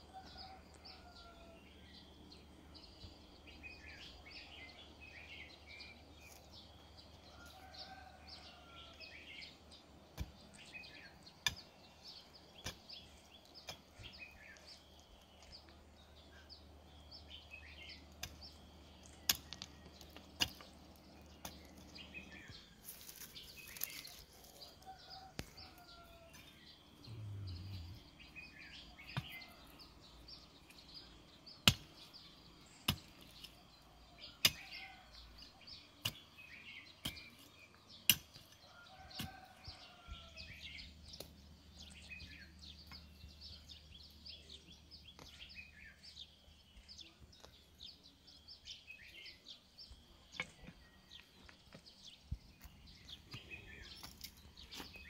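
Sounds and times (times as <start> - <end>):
small birds chirping: 0.0 - 55.0
hoe striking stony soil: 9.4 - 15.5, 16.9 - 24.6, 28.4 - 29.8, 30.4 - 35.0, 35.7 - 39.5.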